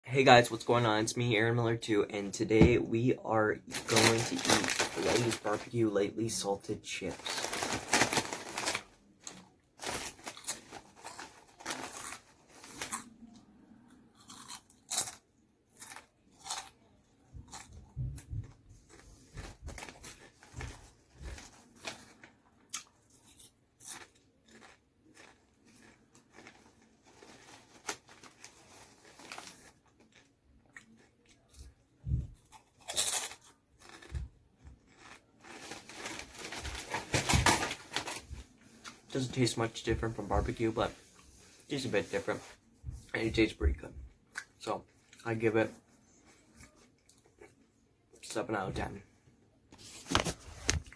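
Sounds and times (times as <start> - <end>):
person crunching potato chips: 3.7 - 16.8, 18.8 - 31.8, 32.4 - 38.2.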